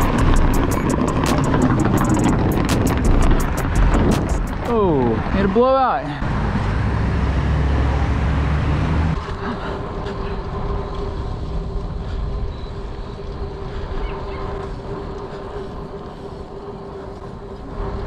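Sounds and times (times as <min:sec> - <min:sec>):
steady hum: 0:00.0 - 0:05.2, 0:09.0 - 0:18.0
bike tyres rumbling on asphalt: 0:00.0 - 0:18.0.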